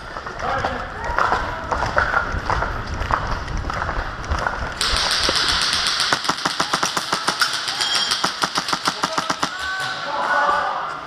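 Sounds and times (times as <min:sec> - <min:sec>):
airsoft gun rapid shots: 0:04.8 - 0:09.9.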